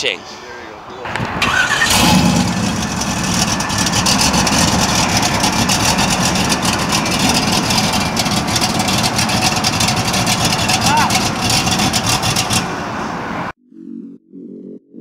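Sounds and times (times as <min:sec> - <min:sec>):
car engine idling loudly: 0:01.2 - 0:13.2.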